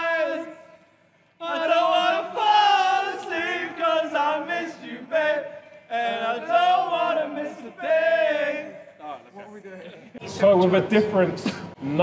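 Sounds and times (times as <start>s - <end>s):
choir-like group chanting: 1.4s - 8.9s.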